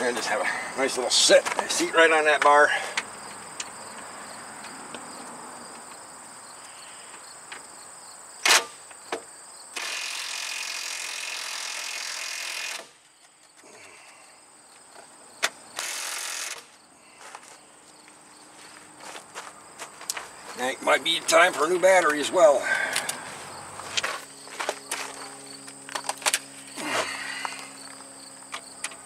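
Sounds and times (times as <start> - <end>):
insects chirping: 0.0 - 29.0
impact wrench running: 9.8 - 13.0, 15.8 - 16.7.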